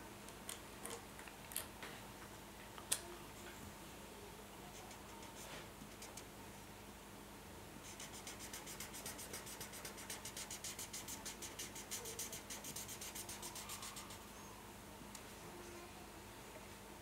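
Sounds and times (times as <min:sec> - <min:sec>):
marker scribbling on paper: 0:07.9 - 0:14.2.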